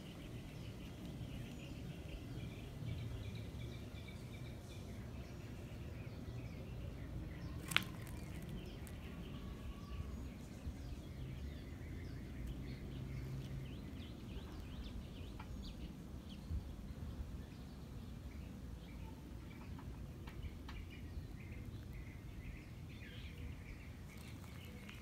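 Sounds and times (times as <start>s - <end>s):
small bird chirps: 18.9s - 25.0s.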